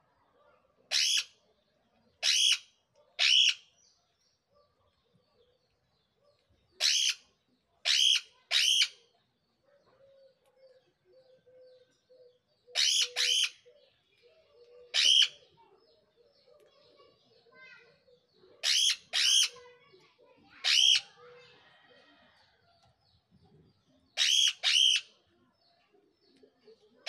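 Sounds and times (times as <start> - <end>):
parakeets screeching: 6.8 - 7.2, 7.9 - 8.9, 12.7 - 13.6, 14.9 - 15.3, 18.6 - 19.6, 20.6 - 21.2, 24.2 - 25.0.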